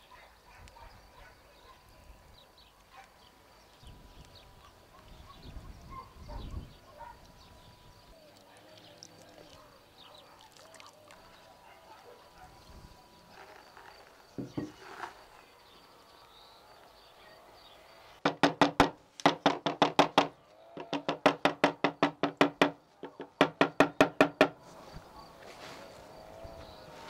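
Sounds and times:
bone knocking on wooden board: 14.4s - 14.7s, 18.2s - 24.6s.

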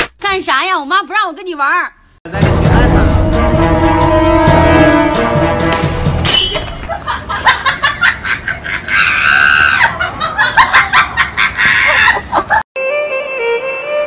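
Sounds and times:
person laughing loudly: 6.9s - 12.6s.

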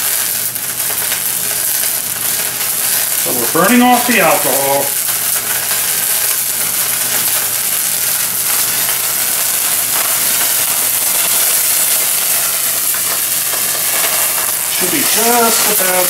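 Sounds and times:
flaming cognac hissing and sizzling: 0.0s - 16.0s.

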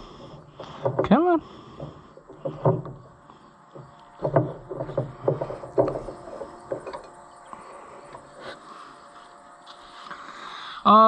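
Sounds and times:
filter rubbing and squeaking: 0.0s - 3.2s, 3.8s - 7.1s.

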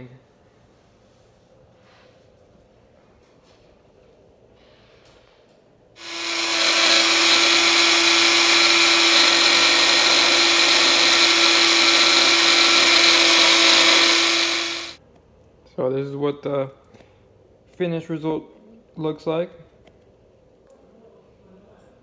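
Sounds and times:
blender grinding leaves: 6.0s - 15.0s.

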